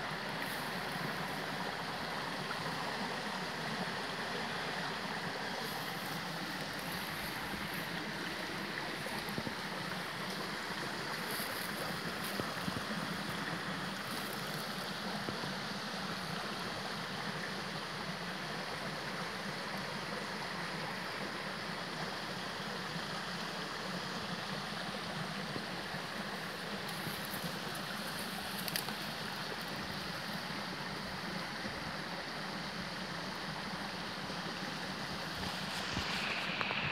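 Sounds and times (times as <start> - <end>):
faint high hiss: 0.0 - 36.9
steady rushing noise: 35.2 - 36.9.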